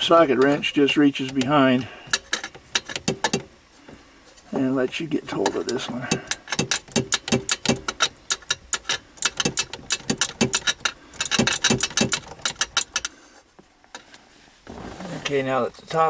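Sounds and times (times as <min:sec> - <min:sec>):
ratchet wrench clicking: 0:02.1 - 0:03.4, 0:06.2 - 0:13.1.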